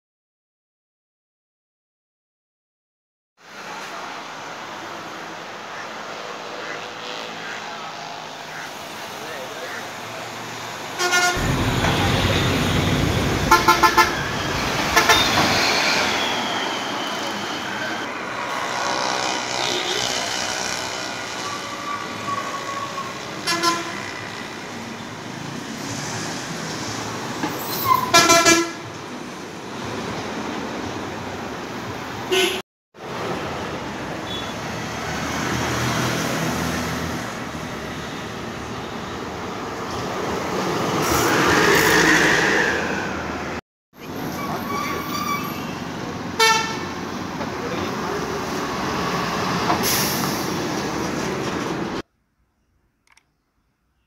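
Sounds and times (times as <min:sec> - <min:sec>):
street traffic: 0:03.4 - 0:54.0
bus driving past: 0:03.5 - 0:28.1, 0:33.0 - 0:52.0
vehicle engines running: 0:03.7 - 0:27.7
car horn blast: 0:11.0 - 0:14.3, 0:14.9 - 0:15.4, 0:23.5 - 0:24.0, 0:46.4 - 0:46.8.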